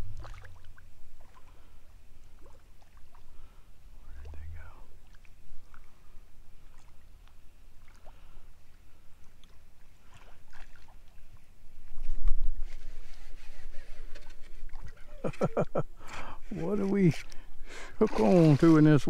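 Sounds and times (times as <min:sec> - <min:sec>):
low rumble: 0:00.0 - 0:00.8, 0:04.0 - 0:05.1
small splashes: 0:00.1 - 0:03.5, 0:05.0 - 0:08.4, 0:09.2 - 0:12.1, 0:14.6 - 0:15.4.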